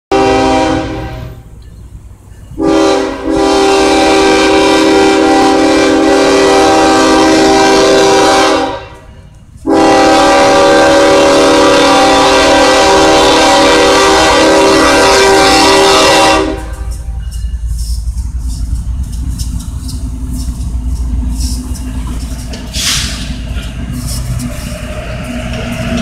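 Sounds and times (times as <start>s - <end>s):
locomotive air horn blasts: 0.1s - 1.5s, 2.6s - 17.2s.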